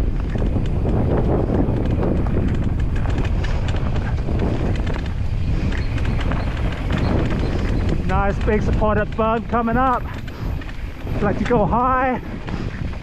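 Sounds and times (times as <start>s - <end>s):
bike knocks and rattles: 0.0s - 13.0s
bike tyre rumble: 0.0s - 13.0s
wind noise on microphone: 0.0s - 13.0s.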